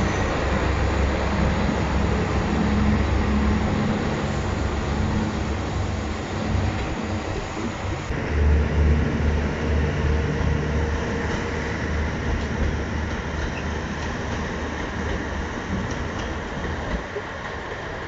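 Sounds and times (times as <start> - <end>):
diesel engine throbbing rumble: 0.0 - 13.2
train wheels on rails: 0.0 - 18.0.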